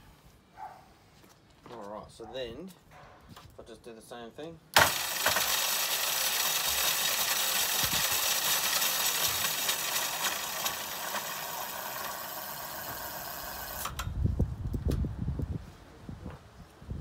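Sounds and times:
electric motor whining: 0:09.2 - 0:14.0.

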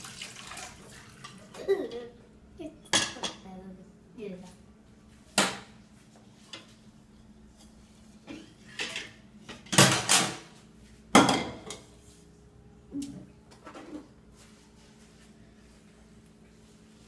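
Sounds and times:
dishes clattering in sink: 0:02.9 - 0:03.4, 0:08.3 - 0:10.5, 0:11.1 - 0:11.9.

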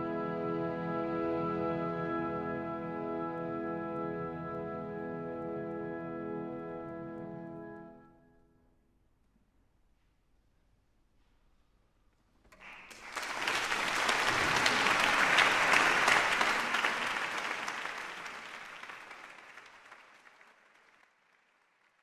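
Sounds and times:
audience applauding: 0:12.5 - 0:22.0.

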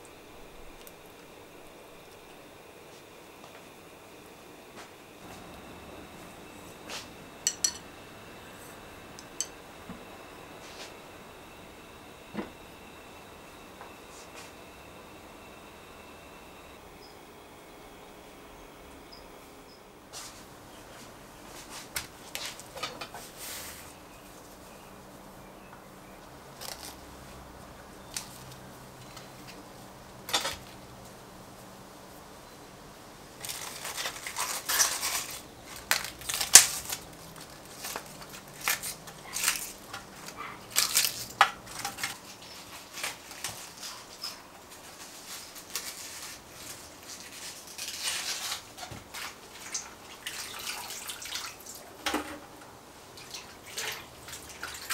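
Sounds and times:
cabbage leaves tearing: 0:26.6 - 0:27.0, 0:33.4 - 0:41.4, 0:42.2 - 0:48.8.

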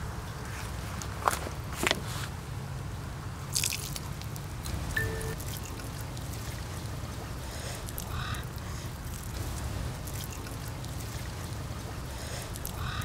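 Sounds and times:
steady low rumble: 0:02.8 - 0:13.0
wet fish gutting noises: 0:05.4 - 0:13.0.

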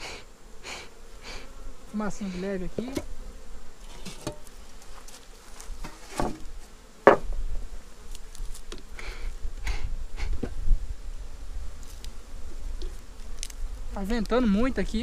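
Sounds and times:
bee smoker puffs: 0:00.0 - 0:15.0
bees buzzing: 0:00.0 - 0:15.0
wind rumble on microphone: 0:09.3 - 0:11.8.

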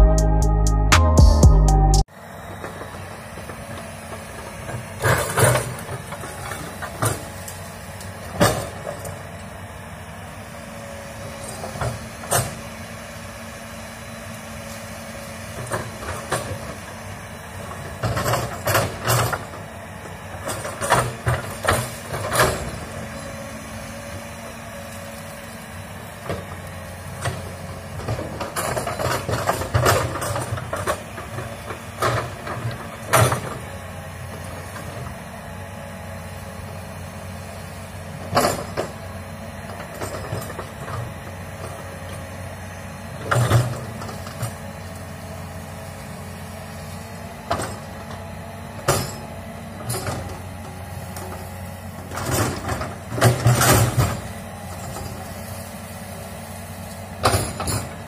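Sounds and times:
excavator diesel engine running: 0:00.0 - 0:58.0
metallic clanks of excavator bucket: 0:17.7 - 0:19.6, 0:20.3 - 0:23.0, 0:28.0 - 0:33.6, 0:38.2 - 0:39.1, 0:47.5 - 0:48.2, 0:48.8 - 0:50.5, 0:51.2 - 0:55.3, 0:57.2 - 0:58.0.

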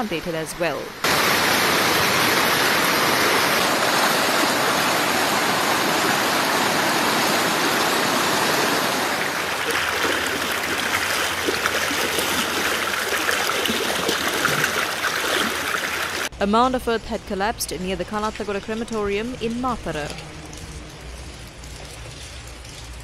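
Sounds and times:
floodwater rushing: 0:00.0 - 0:16.3.

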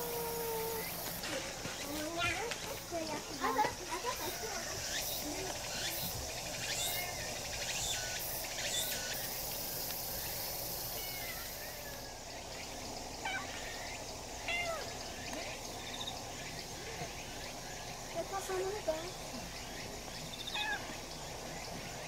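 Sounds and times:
kitten meowing: 0:11.0 - 0:12.0, 0:14.5 - 0:14.9, 0:20.5 - 0:20.9.

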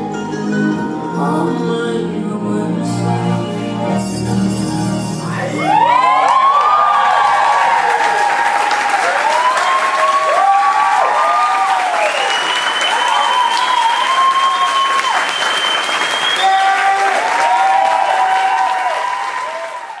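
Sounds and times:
cheering voices: 0:05.3 - 0:20.0
audience applauding: 0:05.6 - 0:20.0.

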